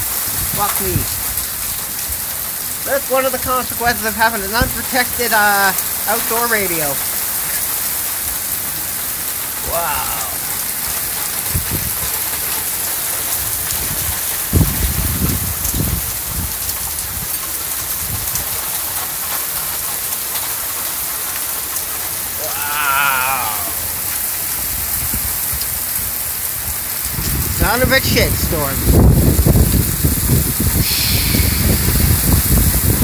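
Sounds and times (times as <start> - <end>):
heavy rain pouring: 0.0 - 33.0
wind buffeting microphone: 11.2 - 12.3, 13.3 - 17.3, 24.6 - 33.0.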